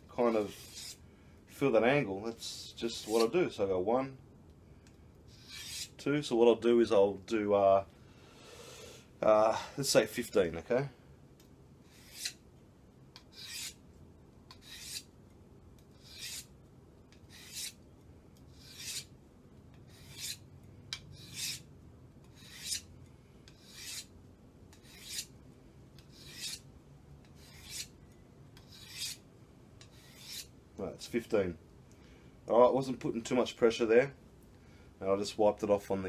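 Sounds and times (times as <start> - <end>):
knife rasping on sharpening plate: 5.4 - 5.9, 11.9 - 12.4, 13.3 - 13.8, 14.6 - 15.1, 16.0 - 16.5, 18.6 - 19.1, 19.9 - 20.4, 22.4 - 22.8, 23.5 - 24.1, 24.8 - 25.3, 26.1 - 26.6, 27.4 - 27.9, 28.6 - 29.2.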